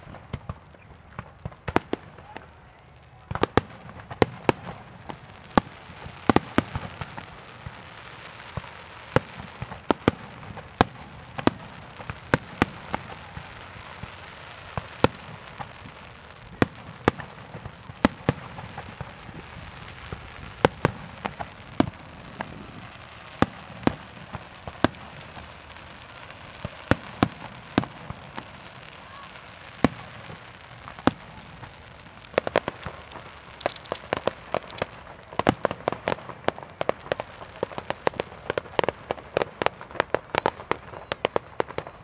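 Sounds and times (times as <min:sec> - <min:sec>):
fireworks bangs: 0:00.0 - 0:42.0
fireworks crackling hiss: 0:00.0 - 0:42.0.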